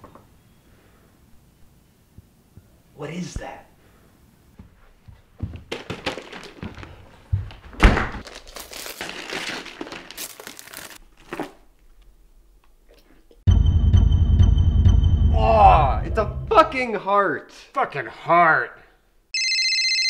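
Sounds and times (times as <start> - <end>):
paper wrapping crinkling and tearing: 5.7 - 7.0, 8.1 - 11.8
cardboard box torn open: 8.2 - 11.6
music: 13.5 - 16.7.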